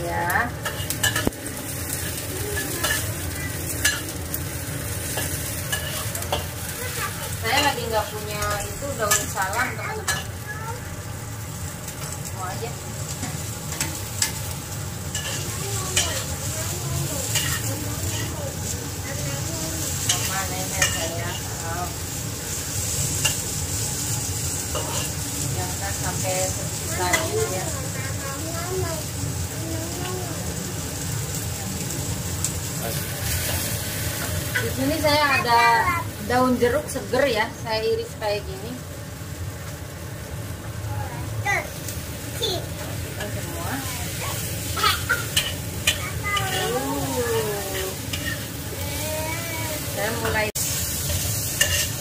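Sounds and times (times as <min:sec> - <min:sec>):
food sizzling in hot oil: 0:00.0 - 0:52.0
metal spatula scraping a wok: 0:05.0 - 0:06.5, 0:47.7 - 0:48.6, 0:50.6 - 0:52.0.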